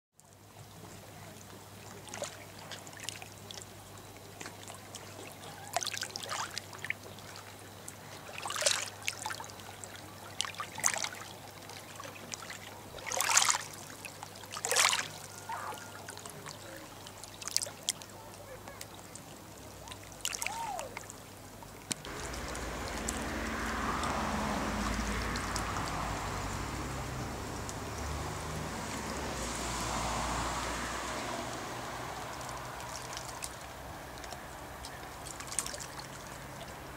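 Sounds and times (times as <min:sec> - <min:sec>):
outdoor hiss and rumble: 0:00.2 - 0:36.9
river water lapping and splashing: 0:00.2 - 0:36.9
low hum: 0:22.1 - 0:35.4.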